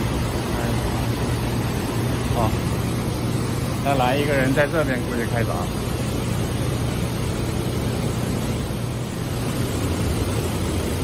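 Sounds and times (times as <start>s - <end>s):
diesel engine idling: 0.0s - 11.0s
even rushing noise: 0.0s - 11.0s.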